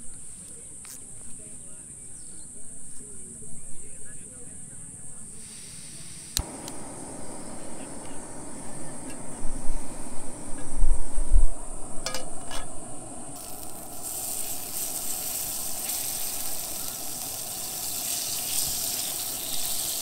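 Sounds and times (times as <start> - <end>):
gas burner flame rushing: 5.4 - 20.0
margarine sizzling in a pan: 5.4 - 20.0
camping stove ignition click: 6.3 - 20.0.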